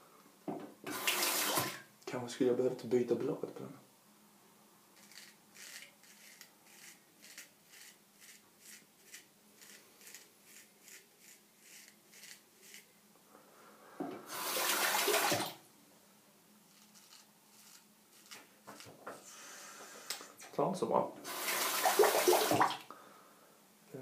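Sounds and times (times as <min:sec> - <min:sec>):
tap water rushing: 0:00.5 - 0:01.8, 0:14.0 - 0:15.6, 0:21.2 - 0:22.8
razor scraping stubble: 0:05.0 - 0:12.9, 0:16.7 - 0:19.0.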